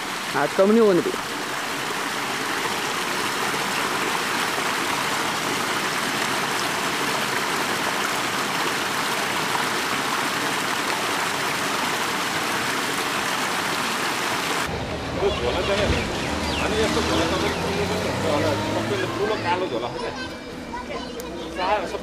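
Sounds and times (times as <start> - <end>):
flowing water rushing: 0.0 - 22.0.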